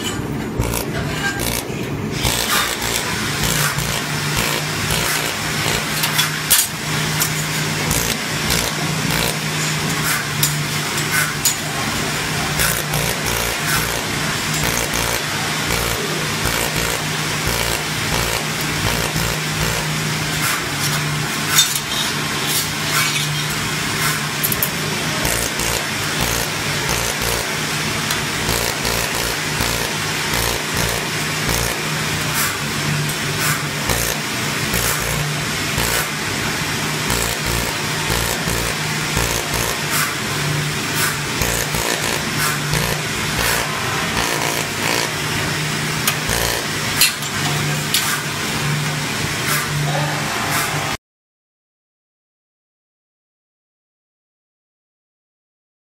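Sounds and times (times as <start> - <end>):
welding machine humming: 0.0 - 21.4, 23.5 - 48.9
sharp welding ticks: 0.6 - 9.6, 12.6 - 20.0, 25.2 - 32.5, 33.4 - 36.2, 37.0 - 40.1, 41.0 - 45.2, 46.1 - 47.2.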